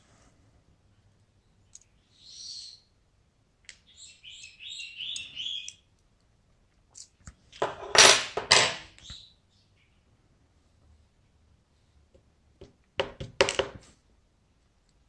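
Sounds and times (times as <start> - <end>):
birds chirping: 1.3 - 3.0, 3.8 - 5.9, 8.9 - 10.2.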